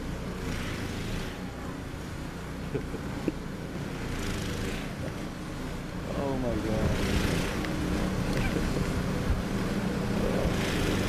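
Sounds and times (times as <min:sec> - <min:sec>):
low engine drone: 0:00.0 - 0:11.0.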